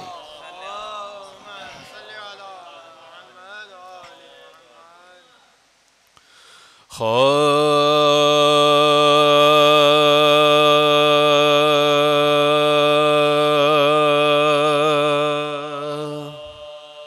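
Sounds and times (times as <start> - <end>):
man singing long held note: 0.0 - 5.6, 6.9 - 17.0
men's voices chanting: 0.0 - 5.6, 7.0 - 17.0.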